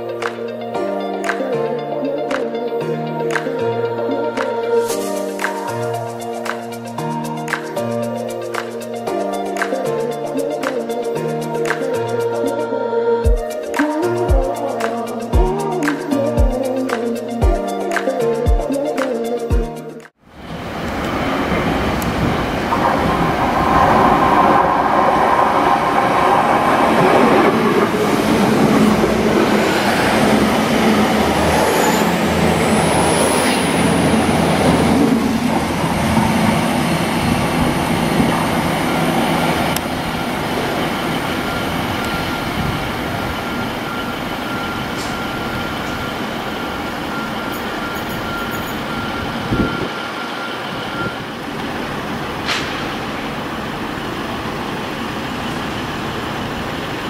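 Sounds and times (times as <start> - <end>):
diesel train engine: 20.2 - 57.0
train wheels squealing: 22.9 - 35.8, 40.1 - 51.5
thin whistle-like tone: 40.1 - 53.1.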